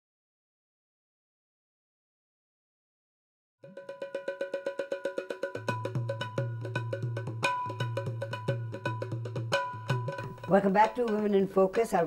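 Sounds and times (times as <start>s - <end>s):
pitched percussion hits: 3.6s - 11.5s.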